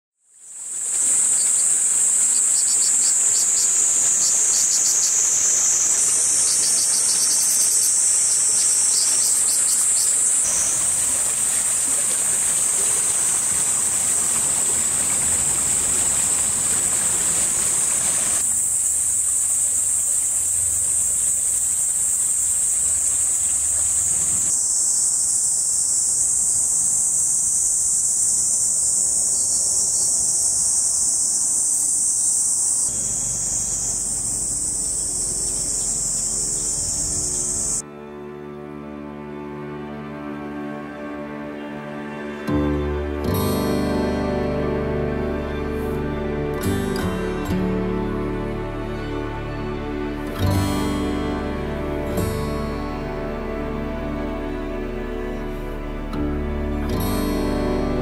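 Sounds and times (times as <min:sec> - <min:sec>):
chirring insects: 0:00.3 - 0:37.8
shallow stream rushing: 0:00.4 - 0:58.0.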